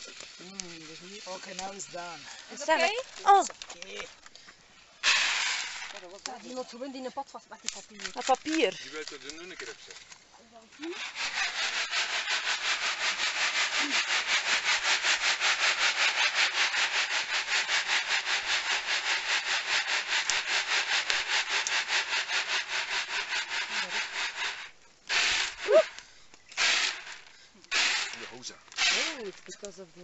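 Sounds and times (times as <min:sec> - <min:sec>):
coffee beans rattling in basket: 0:00.0 - 0:04.3, 0:05.0 - 0:06.8, 0:07.7 - 0:30.0
short rustling bursts: 0:07.9 - 0:29.6.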